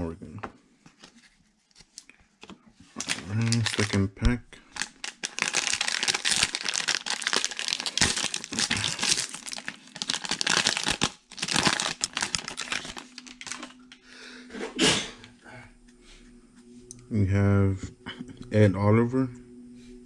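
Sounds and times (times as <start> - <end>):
wrapper crinkling and tearing: 2.9 - 14.0.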